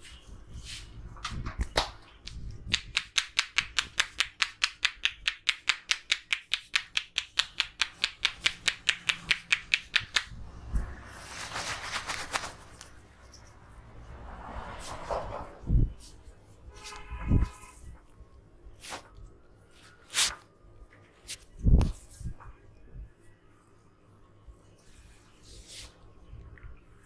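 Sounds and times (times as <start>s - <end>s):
hands tapping on head: 1.8s - 10.4s
fingers rustling through hair: 3.6s - 13.9s, 18.7s - 20.4s.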